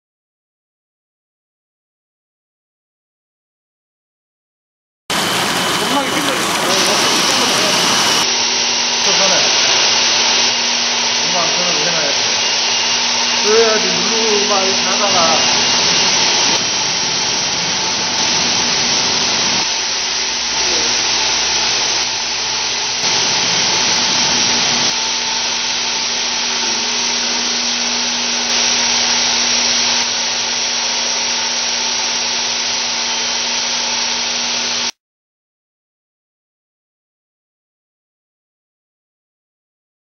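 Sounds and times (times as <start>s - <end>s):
churning aerated water rushing: 5.1s - 8.3s, 8.9s - 31.0s
low machine hum: 5.1s - 32.0s.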